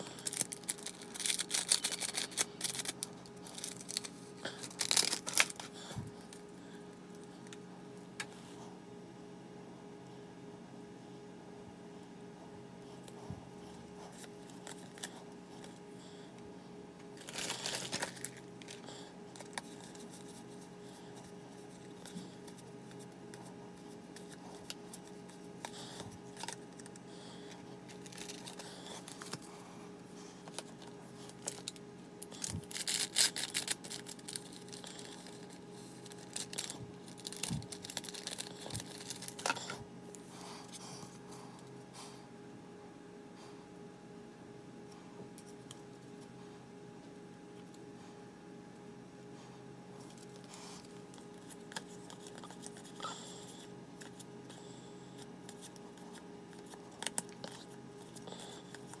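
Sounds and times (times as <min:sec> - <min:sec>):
crinkling and rustling: 0:00.0 - 0:06.5, 0:17.0 - 0:40.8, 0:55.2 - 0:59.0
faint steady hum: 0:00.0 - 0:59.0.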